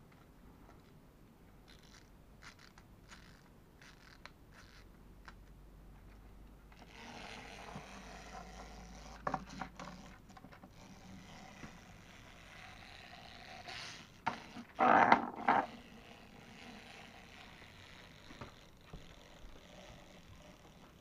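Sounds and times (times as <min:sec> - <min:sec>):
clockwork winding clicks: 0:01.7 - 0:05.4, 0:06.8 - 0:21.0
whirr of running gears: 0:06.8 - 0:21.0.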